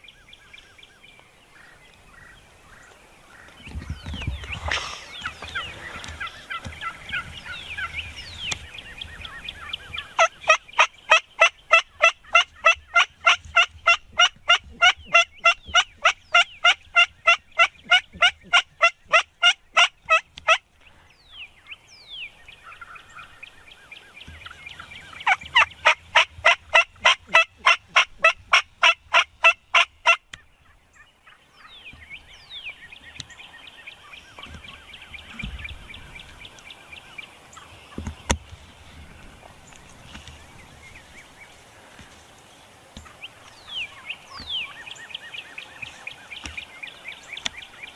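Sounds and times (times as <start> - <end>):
turkey chirps and clucks: 0.4 - 38.5, 43.0 - 47.9
turkey yelping: 10.0 - 20.6, 24.4 - 31.4.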